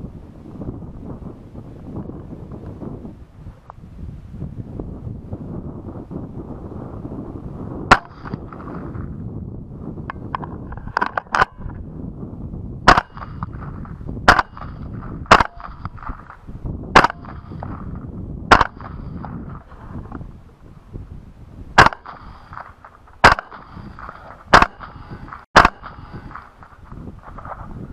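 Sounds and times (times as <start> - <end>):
suppressed rifle shots: 7.9 - 8.8, 12.9 - 13.7, 14.3 - 16.4, 17.0 - 17.8, 18.5 - 19.4, 21.8 - 26.7.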